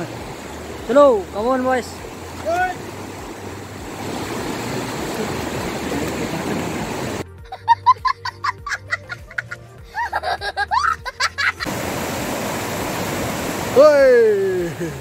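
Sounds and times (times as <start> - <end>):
rushing water: 0.0 - 7.4, 9.3 - 15.0.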